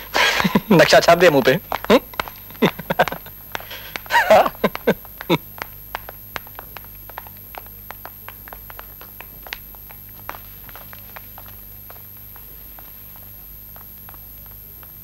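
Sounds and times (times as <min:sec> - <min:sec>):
footsteps on tiled floor: 0:00.0 - 0:15.0
person crying out: 0:04.1 - 0:05.4.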